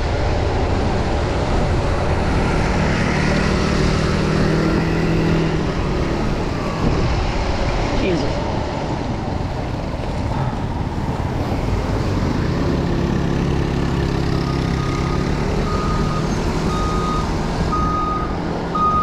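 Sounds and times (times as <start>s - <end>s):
engine running hum: 0.0s - 19.0s
road and wind noise: 0.0s - 19.0s
truck reversing alarm beeping: 14.3s - 19.0s.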